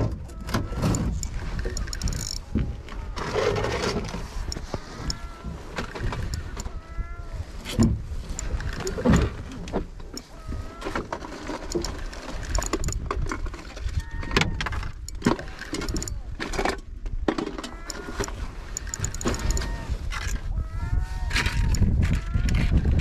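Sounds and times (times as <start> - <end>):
wind rumbling on microphone: 0.0 - 23.0
fishing reel clicks and knocks: 0.2 - 3.5, 4.4 - 6.8, 8.3 - 9.3, 10.1 - 16.8, 17.5 - 20.5, 21.4 - 22.5.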